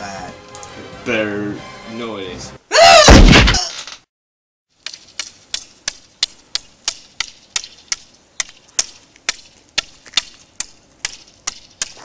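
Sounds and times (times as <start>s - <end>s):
stick tapping on asphalt: 4.8s - 12.0s.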